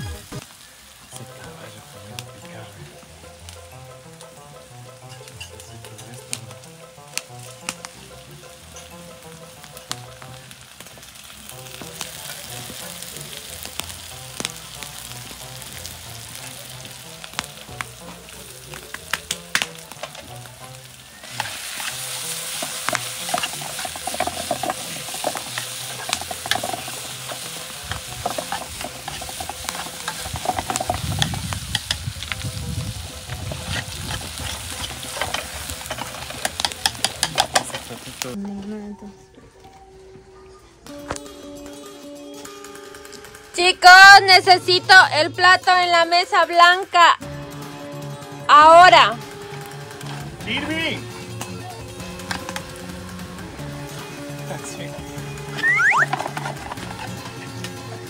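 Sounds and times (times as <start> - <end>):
food sizzling in a frying pan: 0.0 - 38.4, 49.1 - 58.0
utensil clicking against pan: 18.8 - 20.7, 21.4 - 32.5, 33.2 - 38.3.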